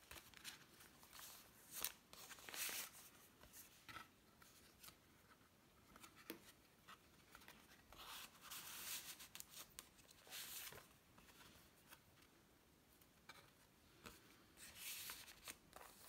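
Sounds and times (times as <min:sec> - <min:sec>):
paper and card rustling: 0:00.0 - 0:12.2, 0:14.0 - 0:16.0.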